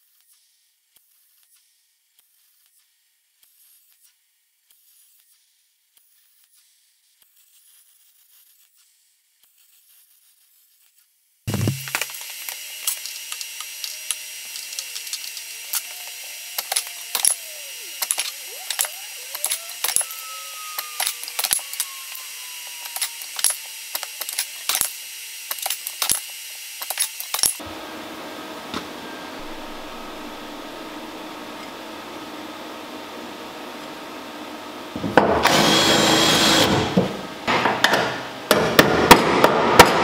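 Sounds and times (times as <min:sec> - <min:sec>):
plasma cutter hissing and crackling: 0:11.5 - 0:18.3.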